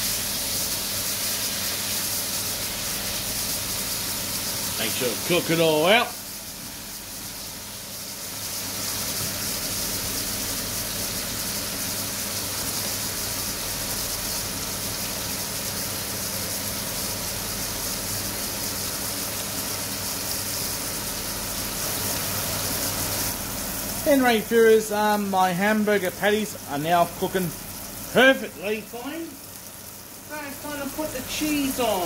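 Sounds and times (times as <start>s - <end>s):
patties sizzling in frying pan: 0.0s - 32.0s.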